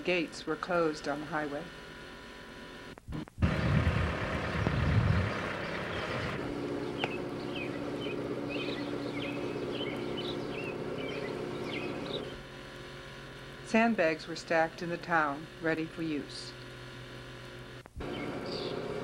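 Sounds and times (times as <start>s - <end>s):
steady low hum: 0.0s - 19.0s
low rumble: 3.4s - 5.5s
birds chirping: 4.6s - 12.4s, 18.0s - 18.9s.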